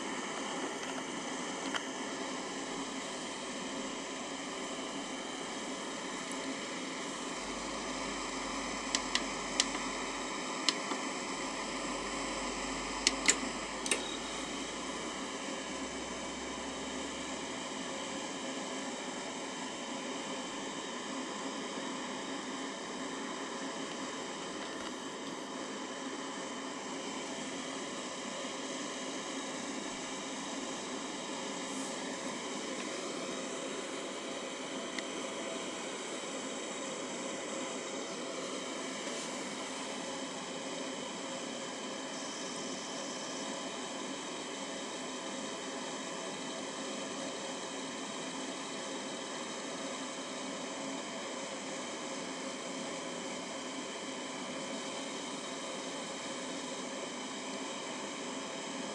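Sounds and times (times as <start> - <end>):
faint steady tones: 0.0 - 24.1
cooling fan whirring: 0.0 - 58.9.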